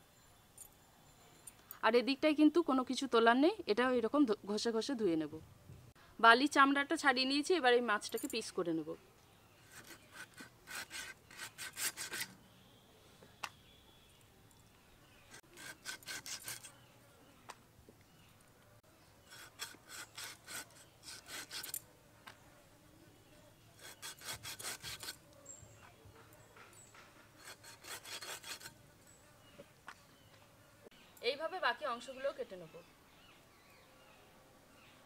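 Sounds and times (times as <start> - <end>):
blade sawing through fish flesh: 9.7 - 12.3, 15.3 - 16.7, 19.3 - 21.8, 23.8 - 25.2, 27.4 - 28.7.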